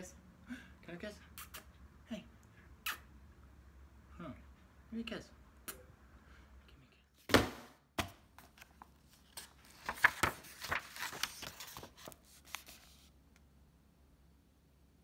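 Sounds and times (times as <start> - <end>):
book pages turning: 8.4 - 13.1.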